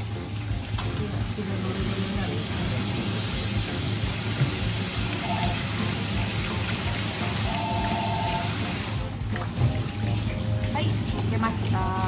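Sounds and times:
background music: 0.0 - 12.0
tap water running into sink: 0.0 - 12.0.

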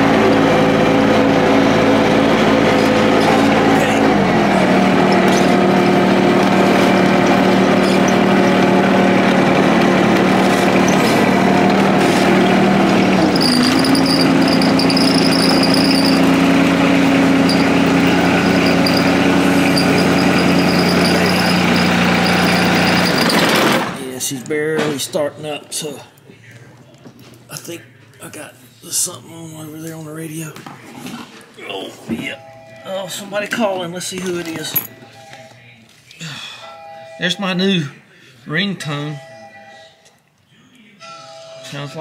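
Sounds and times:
engine running: 0.0 - 24.0.

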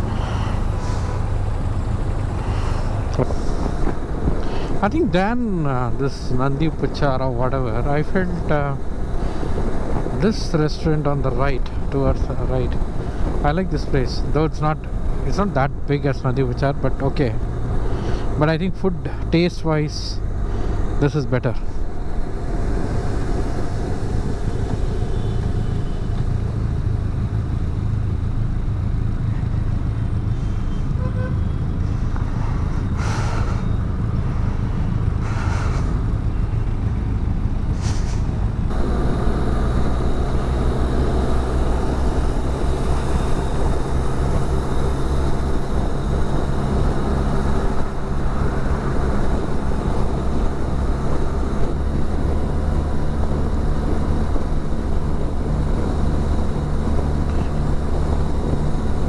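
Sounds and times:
wind and road noise: 0.0 - 59.0
motorcycle engine running: 21.8 - 31.6, 38.7 - 59.0.

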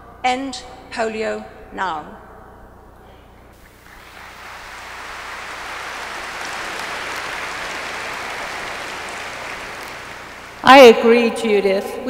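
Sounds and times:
audience applauding: 3.6 - 10.7.

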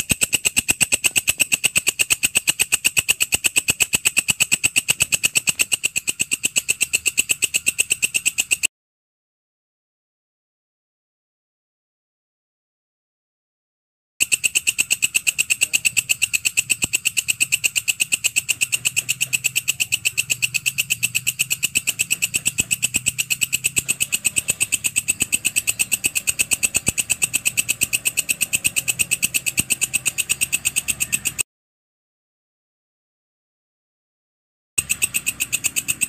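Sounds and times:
insect chirping: 0.0 - 8.7, 14.2 - 31.4, 34.8 - 36.0.

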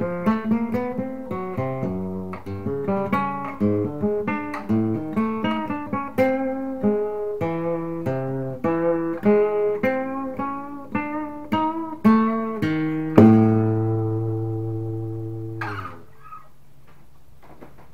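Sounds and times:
flamenco guitar picked notes: 0.0 - 16.5
guitar strings damped: 7.7 - 16.5.

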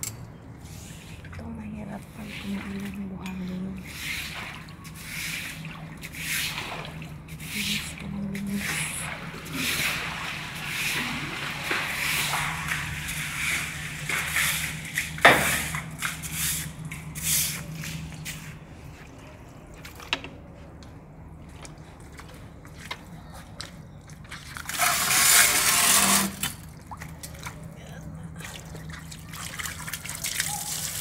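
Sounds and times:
water sloshing: 0.0 - 31.0
push broom scrubbing wet tiles: 0.6 - 18.9, 24.2 - 26.6.

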